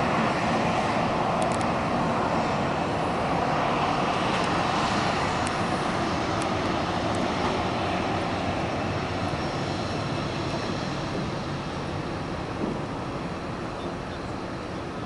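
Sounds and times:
jet engines roaring: 0.0s - 15.0s.

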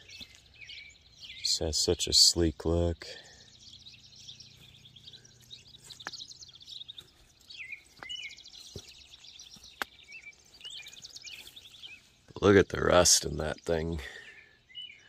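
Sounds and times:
faint birds chirping: 0.0s - 15.0s.

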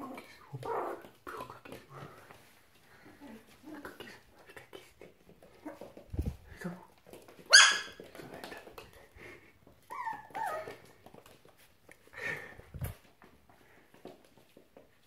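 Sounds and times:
puppy yelping: 7.5s - 8.0s, 9.9s - 10.8s
puppy whining: 9.8s - 11.0s.

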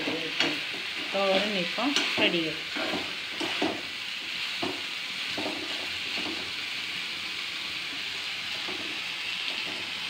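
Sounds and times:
spatula scraping a pan: 0.0s - 6.7s
food sizzling in a pan: 0.0s - 10.0s.

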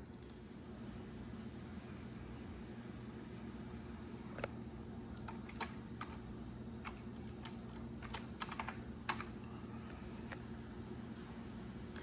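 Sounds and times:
keyboard keystrokes: 5.2s - 6.2s, 6.8s - 9.4s.

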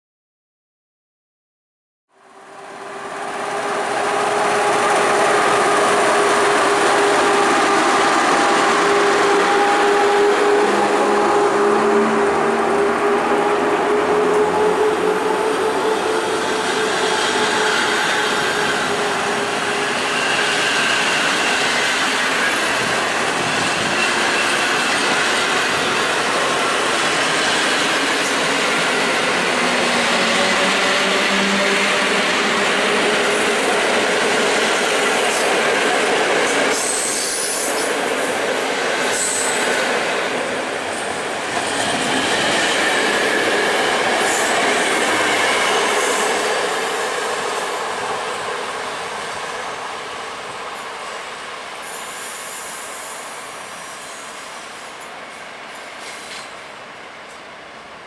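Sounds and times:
train wheels rumbling on rail: 2.5s - 58.0s.

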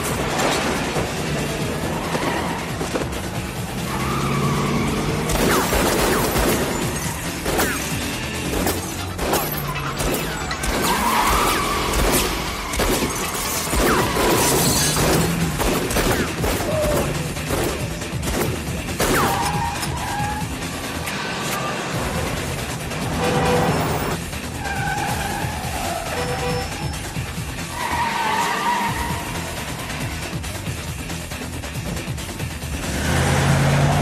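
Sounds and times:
action film music score: 0.0s - 34.0s
tyres squealing: 1.5s - 15.6s, 19.0s - 22.0s, 23.0s - 30.2s.

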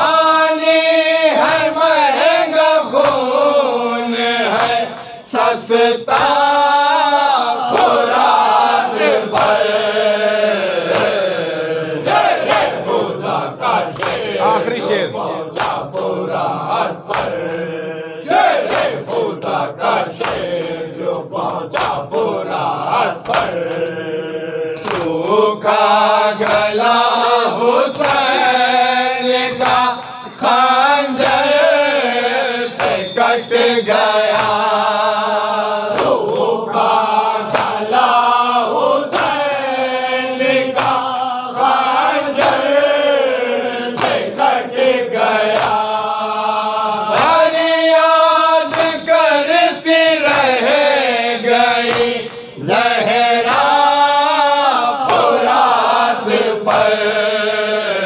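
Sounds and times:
men chanting in unison: 0.0s - 58.0s
hands slapping chests: 2.8s - 3.4s, 4.5s - 5.5s, 6.1s - 6.5s, 7.6s - 9.7s, 10.8s - 14.9s, 15.5s - 17.7s, 18.3s - 20.8s, 21.4s - 27.0s, 27.7s - 28.5s, 29.4s - 30.6s, 31.2s - 31.7s, 32.7s - 33.1s, 34.2s - 34.9s, 35.9s - 36.5s, 37.4s - 38.1s, 39.1s - 40.0s, 40.6s - 42.8s, 43.9s - 44.5s, 45.5s - 46.2s, 47.1s - 47.8s, 48.6s - 50.9s, 51.7s - 54.0s, 55.0s - 55.8s, 56.6s - 57.0s.

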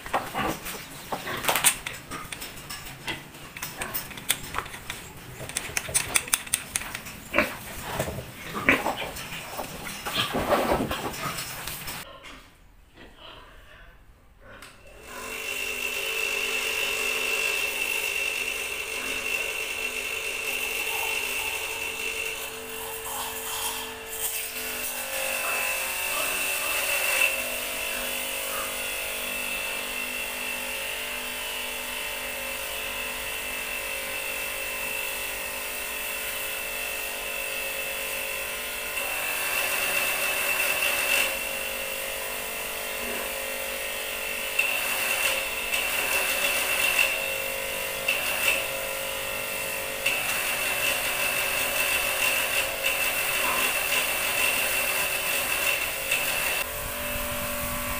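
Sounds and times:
pressure washer motor whining: 42.3s - 57.9s.

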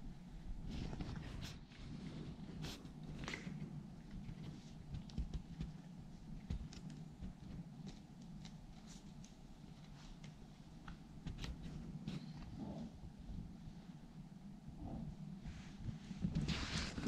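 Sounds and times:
low steady hum: 0.0s - 17.0s
kitten rustling on denim: 15.5s - 17.0s.

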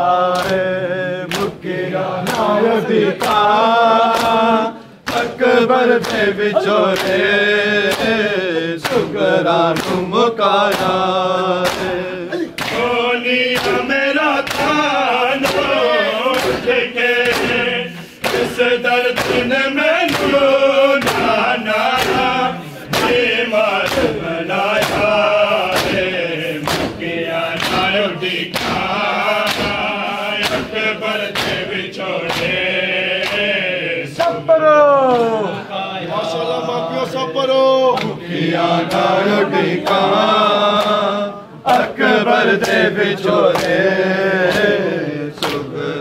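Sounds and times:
men chanting in chorus: 0.0s - 46.0s
hands slapping bare chests: 0.3s - 1.6s, 2.2s - 2.6s, 3.2s - 34.4s, 42.6s - 43.8s, 44.4s - 45.7s.

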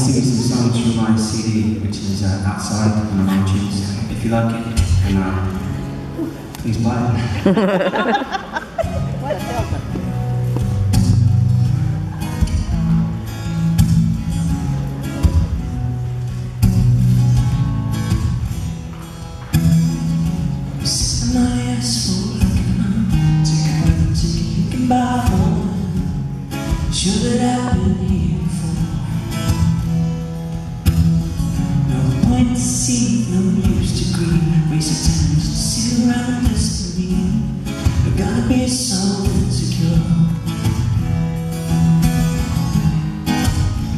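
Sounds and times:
man singing: 0.0s - 5.8s, 20.8s - 26.3s, 26.9s - 29.4s, 31.7s - 40.7s
acoustic guitar playing: 0.0s - 43.9s.

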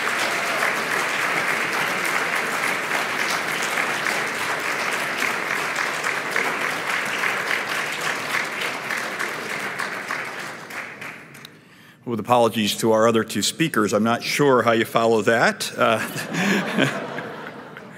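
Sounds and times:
audience applauding: 0.0s - 11.5s.

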